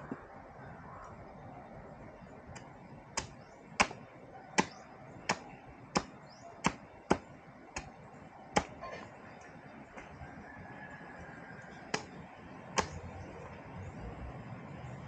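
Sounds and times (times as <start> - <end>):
knife chopping bamboo: 3.1 - 4.0, 4.6 - 7.9, 8.5 - 8.8.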